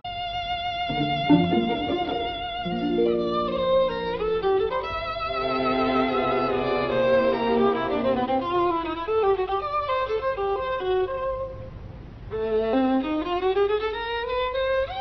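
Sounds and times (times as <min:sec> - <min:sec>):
violin playing slow melody: 0:00.9 - 0:11.6.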